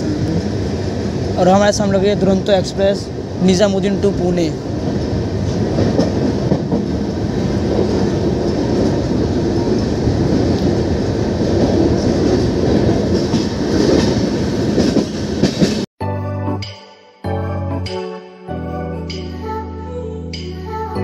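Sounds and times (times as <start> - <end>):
train wheels rumbling on rails: 0.0 - 15.9
clickety-clack of rail joints: 4.8 - 15.9.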